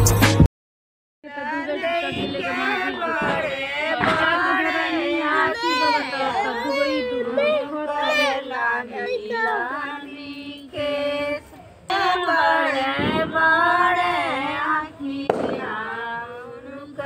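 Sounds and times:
women singing folk song: 1.2 - 17.0
firecrackers banging: 1.9 - 5.0, 12.7 - 16.3.

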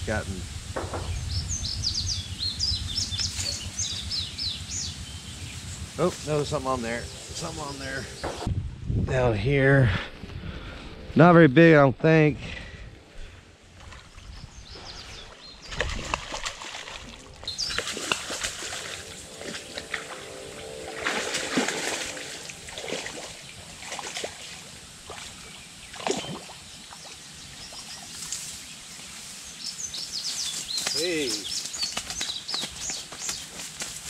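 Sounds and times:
fish splashing in water: 15.3 - 20.2, 20.9 - 27.2.

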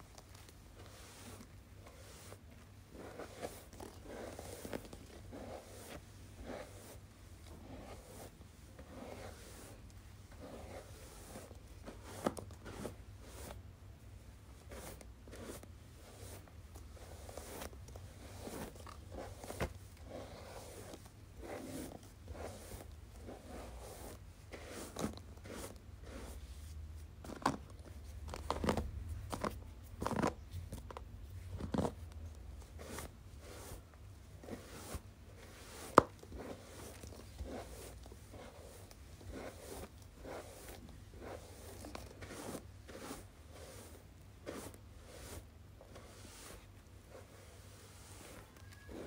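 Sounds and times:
hairbrush brushing strokes: 0.8 - 13.6, 14.6 - 26.8, 32.7 - 49.0.

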